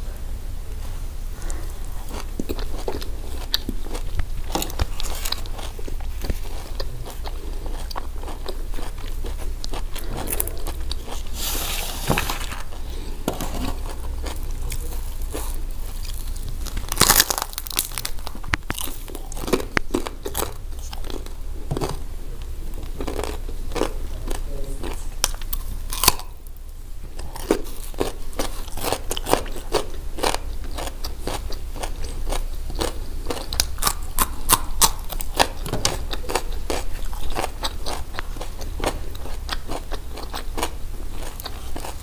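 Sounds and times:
wet chewing: 0:01.4 - 0:22.0, 0:27.2 - 0:42.0
crisp crunching of bread: 0:12.0 - 0:22.0, 0:22.9 - 0:26.3.

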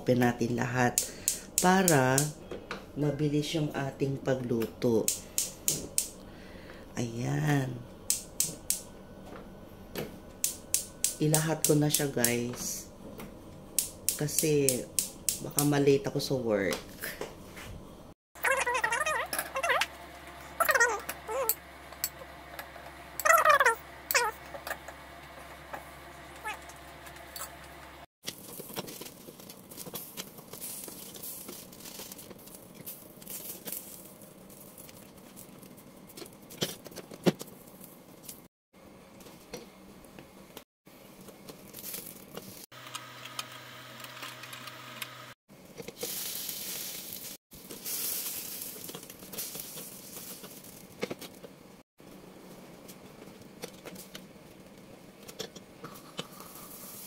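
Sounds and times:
eggplant skins crackling and sizzling: 0:26.6 - 0:38.5, 0:41.2 - 0:42.7, 0:45.7 - 0:51.4, 0:55.9 - 0:57.0.

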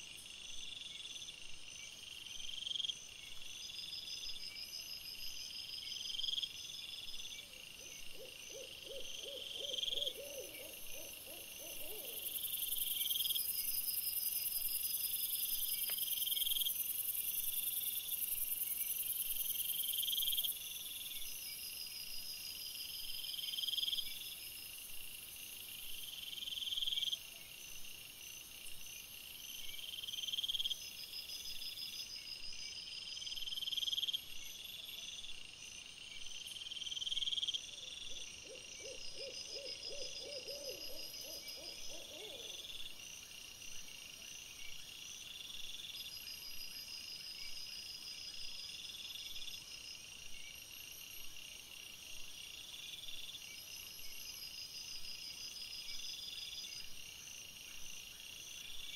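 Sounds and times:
insects buzzing trills: 0:00.0 - 0:58.9
insects chirping: 0:00.0 - 0:58.9.

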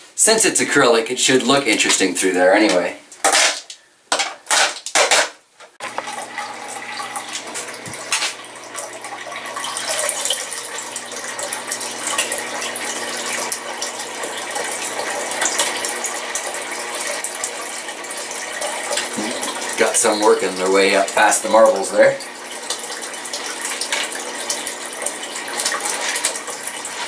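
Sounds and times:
water pump humming: 0:05.8 - 0:27.0
water trickling and splashing: 0:05.8 - 0:27.0.

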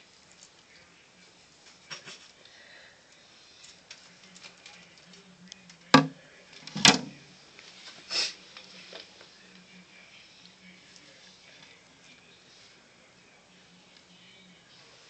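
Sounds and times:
faint steady hum: 0:00.0 - 0:15.0
sharp knocks: 0:06.0 - 0:06.2.

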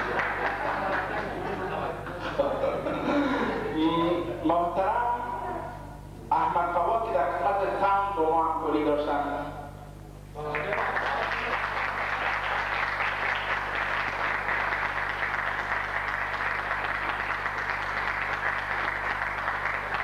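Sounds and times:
audience applauding: 0:00.0 - 0:01.9, 0:10.4 - 0:20.0.

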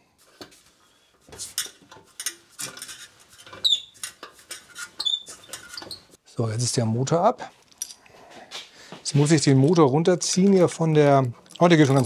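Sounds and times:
short high squeaks: 0:03.4 - 0:06.2.

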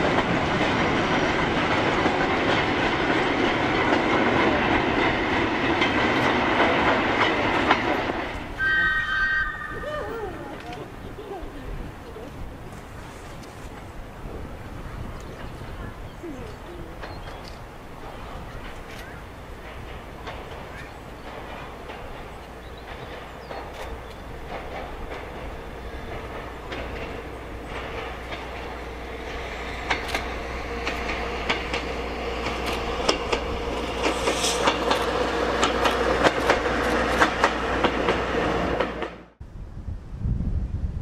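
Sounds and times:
railcar hum: 0:00.0 - 0:41.0
wind on microphone: 0:08.4 - 0:20.8, 0:39.4 - 0:41.0.

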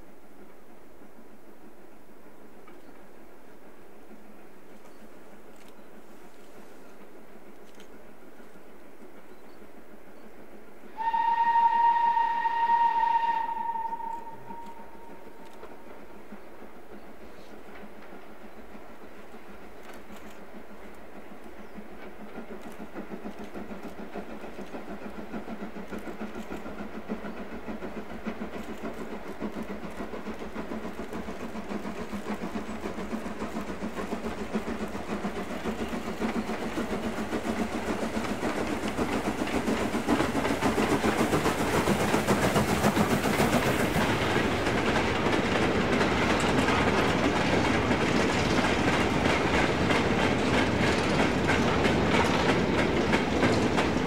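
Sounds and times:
steam locomotive working hard: 0:00.0 - 0:54.0
wagons clattering over rail joints: 0:41.9 - 0:54.0.

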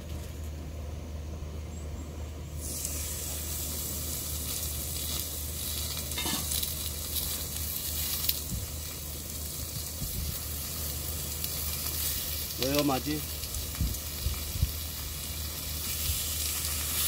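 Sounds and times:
meat sizzling on griddle: 0:02.6 - 0:17.0.

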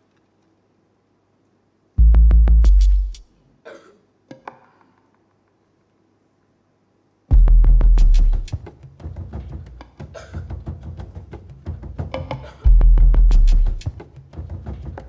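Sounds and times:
deep synthesizer bass notes: 0:02.0 - 0:03.2, 0:07.3 - 0:08.5, 0:12.7 - 0:13.8.

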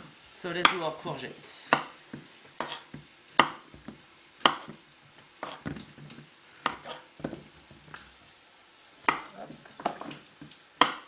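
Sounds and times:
knife striking cutting board: 0:01.7 - 0:04.8, 0:05.4 - 0:07.5, 0:09.0 - 0:10.2, 0:10.8 - 0:11.0.

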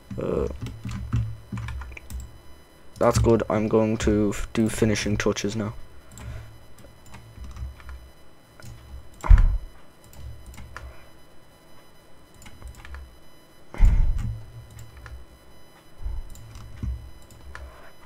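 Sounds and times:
computer keyboard and mouse clicks: 0:12.4 - 0:13.0.

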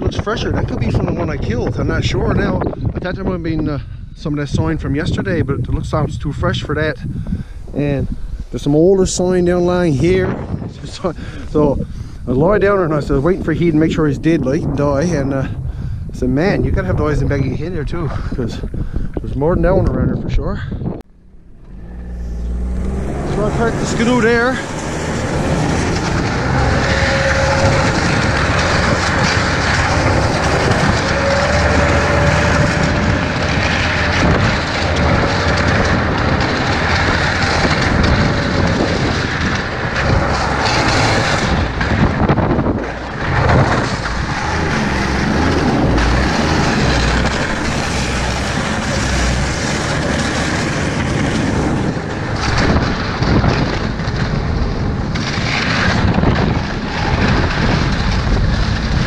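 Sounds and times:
wind rushing over microphone: 0:00.0 - 0:59.0
snowmobile engine running: 0:21.2 - 0:59.0.

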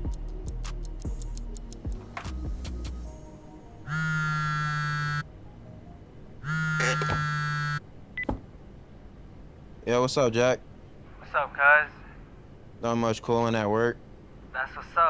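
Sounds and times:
phone vibrating buzz: 0:03.9 - 0:05.3, 0:06.4 - 0:07.8.

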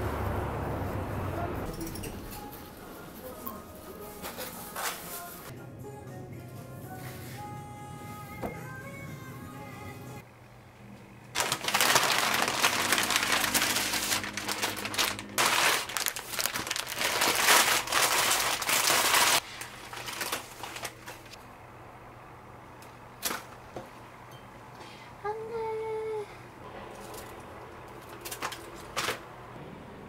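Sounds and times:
wrapping paper crinkling: 0:11.4 - 0:21.4.

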